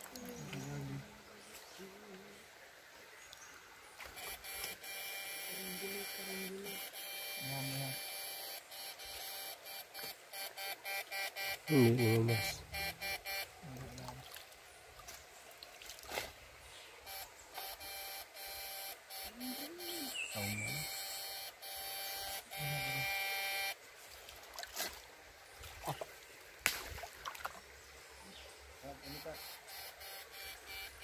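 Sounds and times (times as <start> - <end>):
electrical inverter buzzing: 4.1 - 13.5, 17.1 - 23.8, 28.9 - 31.0.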